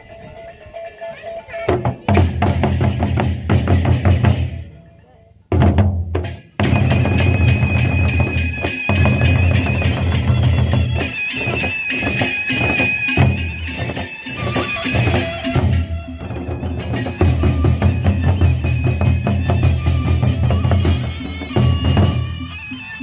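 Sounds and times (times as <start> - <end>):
barrel drums beaten: 1.7 - 4.8, 5.5 - 23.0.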